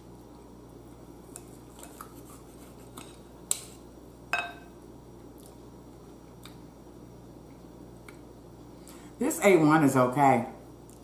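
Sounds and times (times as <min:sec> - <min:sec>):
cutlery clinking against a bowl: 0:04.4 - 0:04.7.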